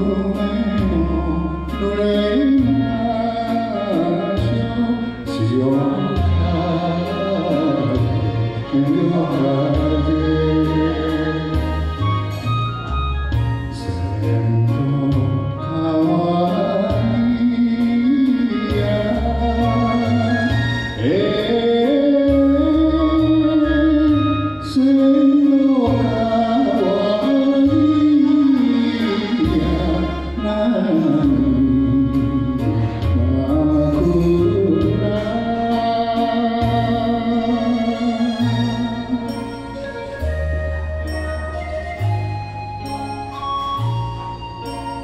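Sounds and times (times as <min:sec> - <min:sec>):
karaoke accompaniment: 0:00.0 - 0:45.0
steady bass: 0:00.0 - 0:45.0
person singing long wavering notes: 0:13.7 - 0:44.8.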